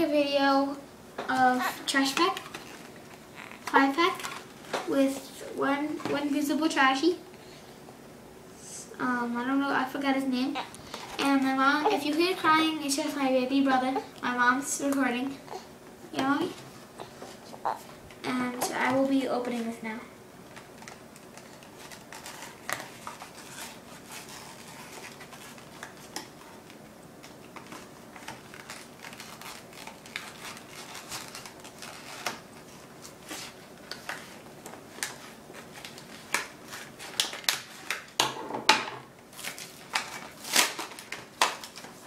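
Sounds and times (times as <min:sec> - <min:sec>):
plastic packaging tearing: 0:20.7 - 0:26.7, 0:27.4 - 0:38.2, 0:39.3 - 0:42.0
blade cutting plastic packaging: 0:27.8 - 0:32.6, 0:39.3 - 0:41.9.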